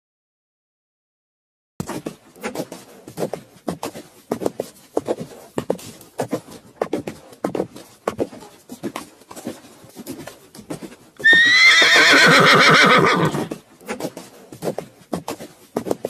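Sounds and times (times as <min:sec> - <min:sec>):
horse neighing: 0:11.2 - 0:13.5.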